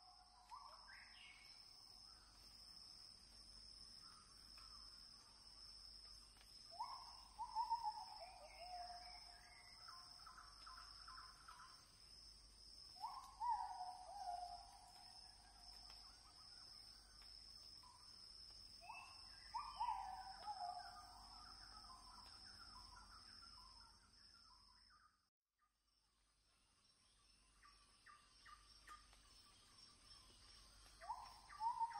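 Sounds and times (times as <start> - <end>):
bird calling: 6.7 - 9.4, 18.8 - 22.3, 30.8 - 31.9.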